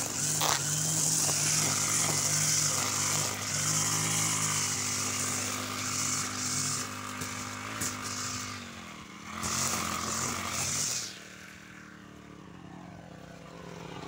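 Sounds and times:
trimmer line hissing through grass: 0:00.0 - 0:12.3
brush cutter engine running: 0:00.0 - 0:14.0.

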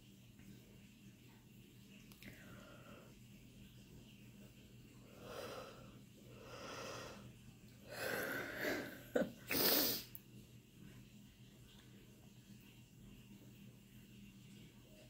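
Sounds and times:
woman breathing: 0:05.1 - 0:10.1.

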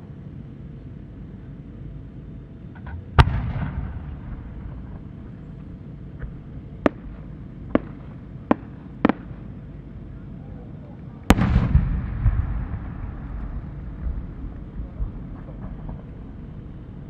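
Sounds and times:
firework launch bang with echo: 0:03.2 - 0:04.7, 0:11.3 - 0:14.2
small firework pops: 0:06.2 - 0:09.4.

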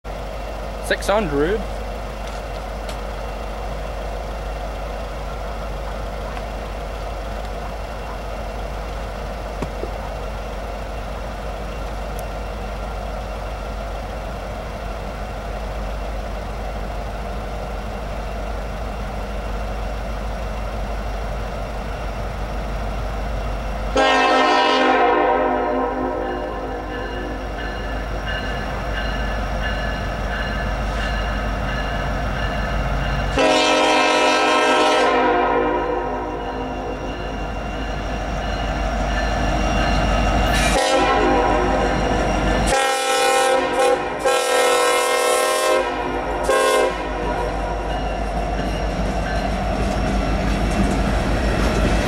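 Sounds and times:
locomotive air horn: 0:23.9 - 0:27.4, 0:33.4 - 0:36.9, 0:40.6 - 0:42.0, 0:42.7 - 0:47.7.

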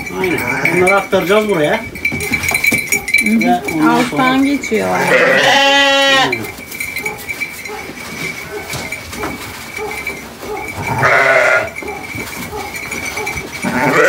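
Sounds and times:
sheep bleating: 0:00.2 - 0:00.9, 0:04.8 - 0:06.5, 0:10.8 - 0:11.8, 0:13.6 - 0:14.0.

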